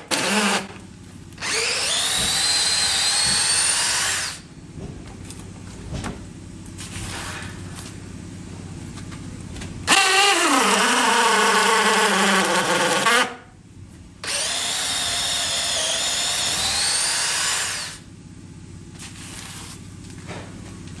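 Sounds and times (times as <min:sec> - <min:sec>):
cordless drill boring into wood: 0:00.0 - 0:00.7, 0:01.4 - 0:04.4, 0:09.9 - 0:13.4, 0:14.2 - 0:18.0.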